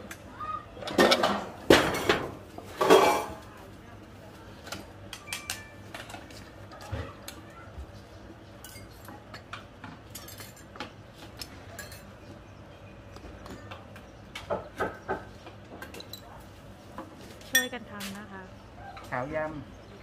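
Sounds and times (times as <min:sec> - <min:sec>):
ceramic bowls and spoons clinking: 0:02.8 - 0:03.4, 0:11.7 - 0:12.1, 0:17.5 - 0:17.8.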